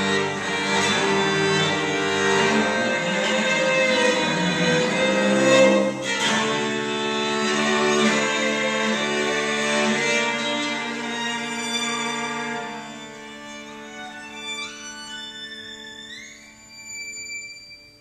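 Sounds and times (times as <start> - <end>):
violin and cello playing: 0.0 - 18.0.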